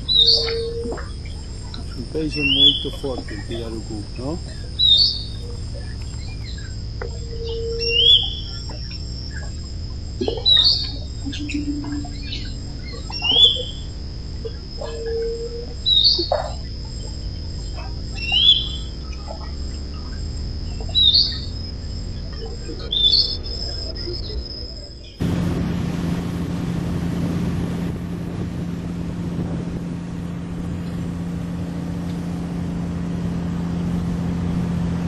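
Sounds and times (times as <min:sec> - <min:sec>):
bird rising chirp: 0:00.0 - 0:25.2
low whistled bird notes: 0:00.0 - 0:25.2
high-pitched insect drone: 0:00.0 - 0:25.3.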